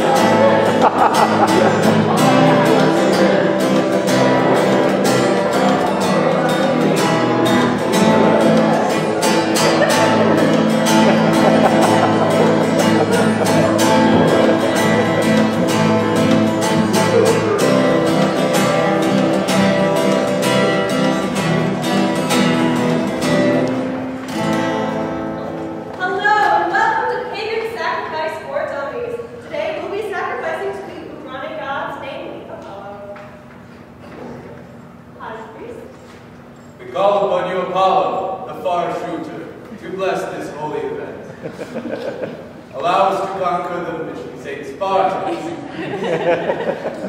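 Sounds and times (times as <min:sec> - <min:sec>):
plucked string instrument music: 0:00.0 - 0:25.9.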